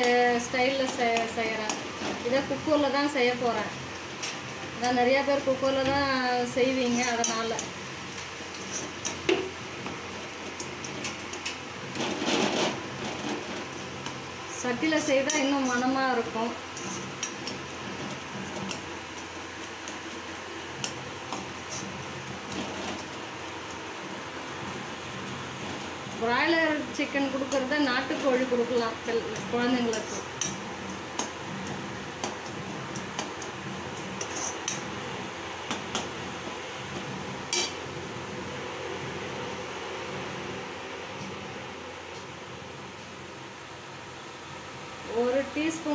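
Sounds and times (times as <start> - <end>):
metal spoon stirring food in pan: 0.0 - 3.0, 6.7 - 38.2.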